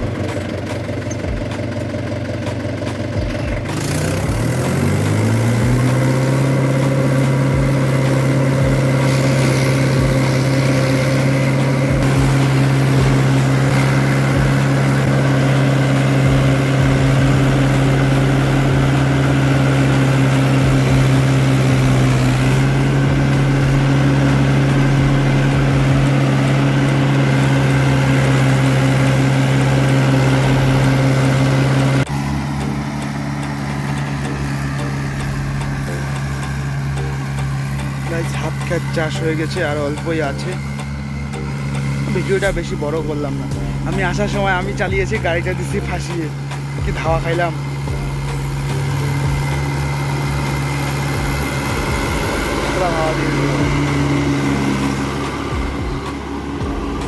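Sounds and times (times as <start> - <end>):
tractor diesel engine revving: 0.0 - 57.0.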